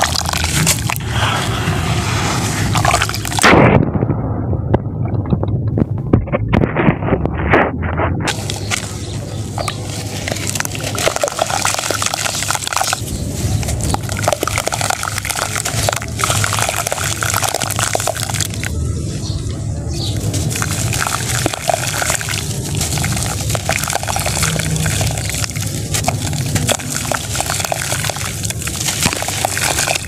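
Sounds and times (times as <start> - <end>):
sand block crackling in hands: 7.2 - 18.7, 20.0 - 30.0
water sloshing and dripping: 9.6 - 18.7, 20.2 - 30.0.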